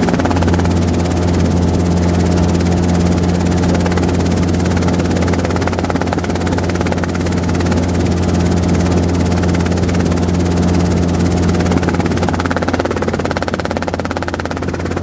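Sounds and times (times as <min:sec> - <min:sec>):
helicopter rotor drone: 0:00.0 - 0:15.0.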